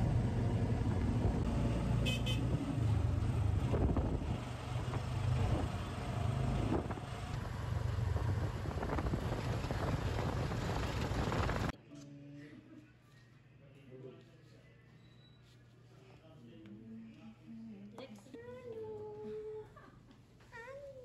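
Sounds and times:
road noise: 0:00.0 - 0:11.7
vehicle engine rumble: 0:00.0 - 0:11.7
car horn toots: 0:02.0 - 0:02.6.

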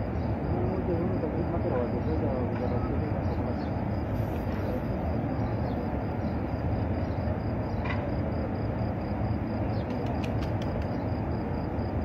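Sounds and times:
faint clicks: 0:09.8 - 0:11.0.

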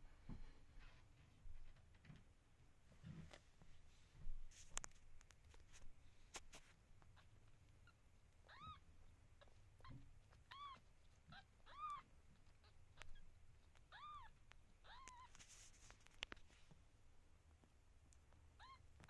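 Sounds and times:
kittens mewing: 0:13.9 - 0:15.4.

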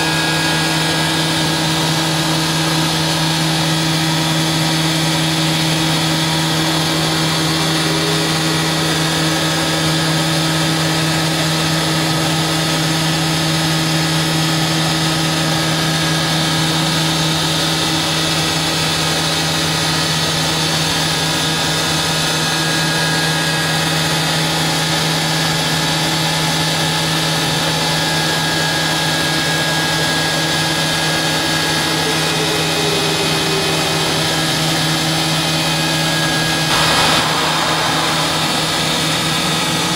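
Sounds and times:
machine hum: 0:00.0 - 0:12.6, 0:31.0 - 0:39.9
machine whines: 0:00.0 - 0:39.9.

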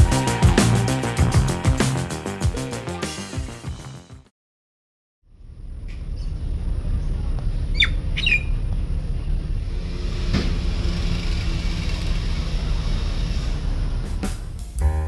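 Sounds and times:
harsh bird squawks: 0:07.7 - 0:08.6.

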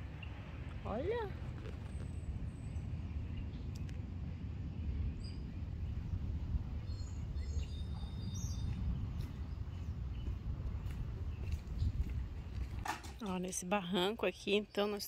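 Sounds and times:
low outdoor rumble: 0:00.0 - 0:15.0
faint bird chirps: 0:06.8 - 0:11.9.

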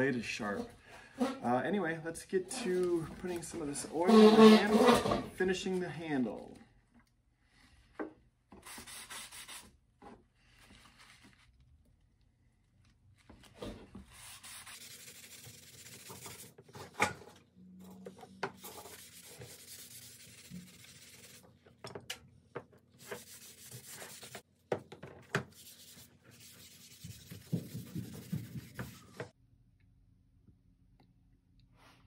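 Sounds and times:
cloth rag rubbing wood: 0:04.0 - 0:05.0, 0:14.1 - 0:16.5, 0:18.6 - 0:21.4, 0:23.0 - 0:24.4, 0:25.5 - 0:29.3.

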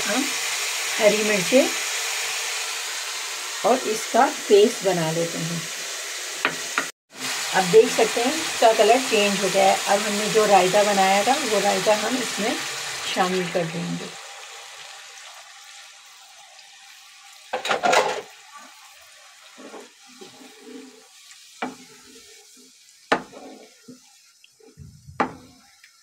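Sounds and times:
sauce hissing in hot pan: 0:00.0 - 0:17.6, 0:18.3 - 0:26.0
spoon knocking against pan: 0:06.4 - 0:06.9, 0:23.1 - 0:23.4, 0:25.2 - 0:25.5
wooden spoon scraping sauce: 0:19.5 - 0:24.8.

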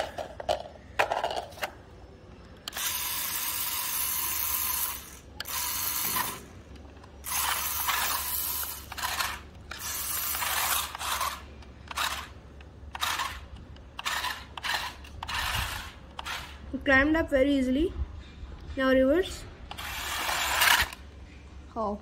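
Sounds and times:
toy car electric motor whirring: 0:02.6 - 0:16.7, 0:19.7 - 0:21.0.

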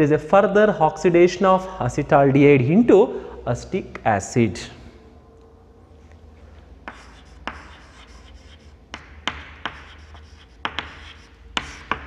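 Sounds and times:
chalk writing on blackboard: 0:06.8 - 0:12.0.

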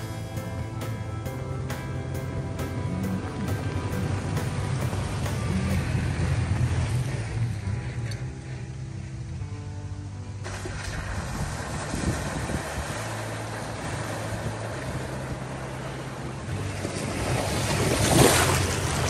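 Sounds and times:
truck engine running low: 0:00.0 - 0:19.0
tyres splashing through water: 0:02.6 - 0:08.2, 0:10.4 - 0:19.0.

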